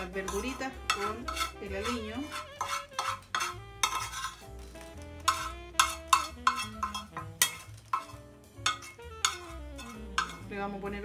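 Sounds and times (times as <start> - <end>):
background music: 0.0 - 11.0
metal spoon scraping frying pan: 0.0 - 11.0.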